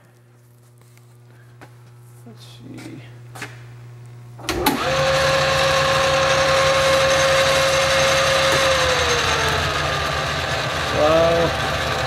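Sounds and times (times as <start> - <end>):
lathe spindle whine: 4.5 - 12.0.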